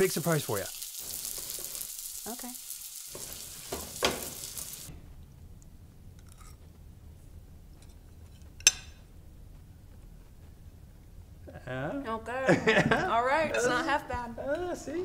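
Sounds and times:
food sizzling in a frying pan: 0.0s - 4.9s.

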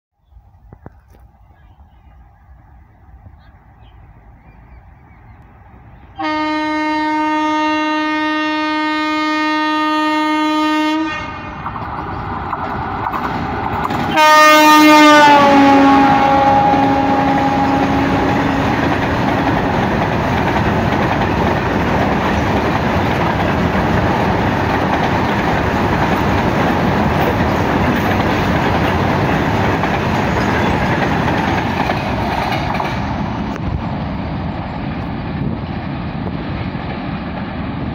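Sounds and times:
locomotive horn blasts: 6.2s - 11.7s, 14.1s - 18.8s
goods wagons rumbling on rails: 11.5s - 37.9s.

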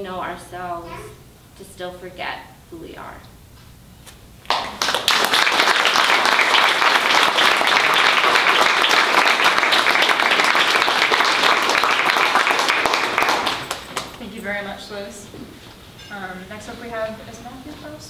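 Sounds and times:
audience applauding: 4.5s - 14.2s.

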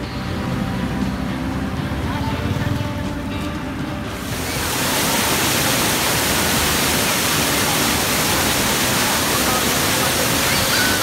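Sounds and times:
waterfall rushing: 4.1s - 11.0s.

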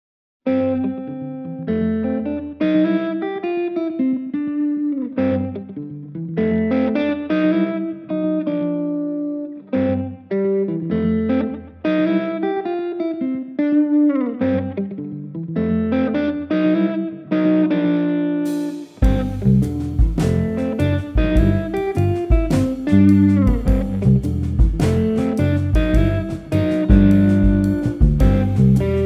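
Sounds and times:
electric guitar jazz chords: 0.5s - 29.0s.

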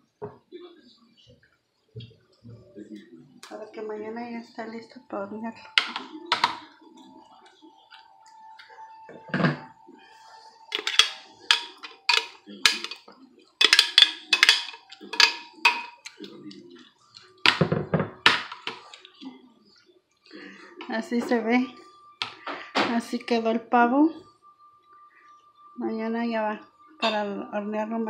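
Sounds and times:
spoon scraping a bowl: 10.7s - 16.2s.

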